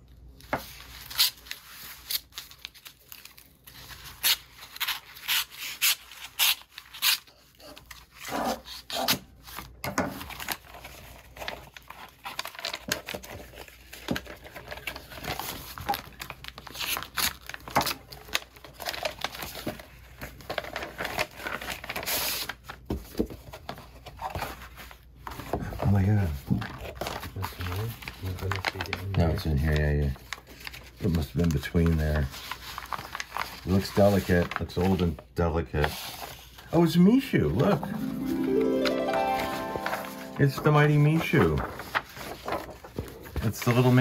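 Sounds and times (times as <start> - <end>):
paper crinkling and rustling: 0.3 - 8.8, 9.4 - 44.0
paper tearing: 1.0 - 9.2.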